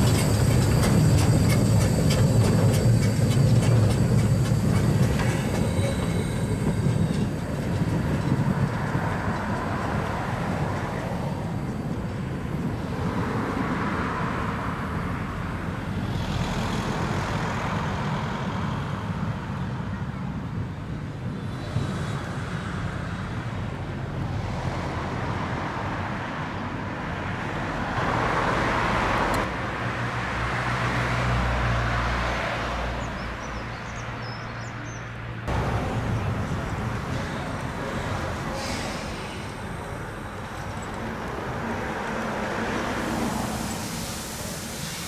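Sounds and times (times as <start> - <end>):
steam train wagons rolling on rails: 0.0 - 18.0, 33.0 - 45.0.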